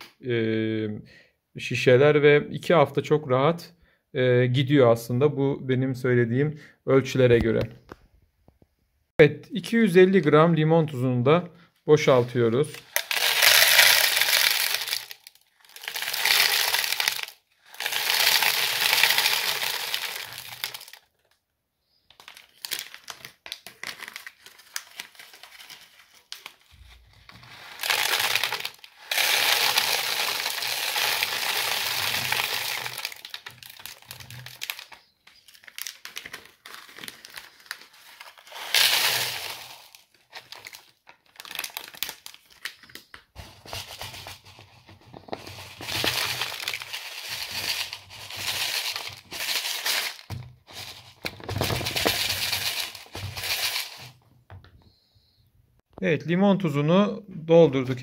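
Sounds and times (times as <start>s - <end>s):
crystals rattling into plastic bottle: 12.2s - 21.1s, 22.2s - 26.7s, 27.4s - 54.2s.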